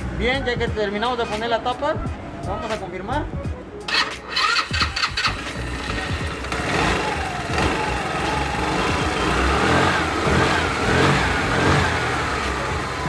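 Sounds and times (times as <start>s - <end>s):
scooter engine revving: 3.9s - 13.0s.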